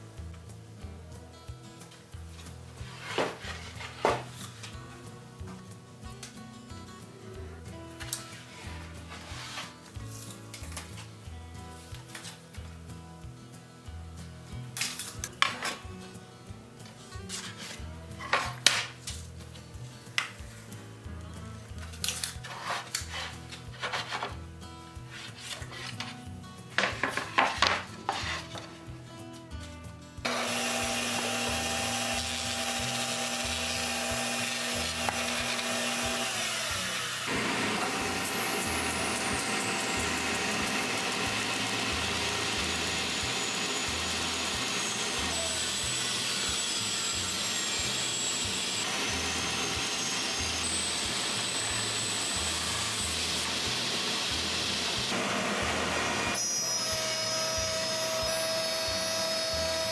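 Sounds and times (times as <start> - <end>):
background music: 0.0 - 59.9
table saw ripping wood: 2.8 - 4.5, 22.0 - 24.4, 30.2 - 59.9
dust collector running: 30.3 - 59.9.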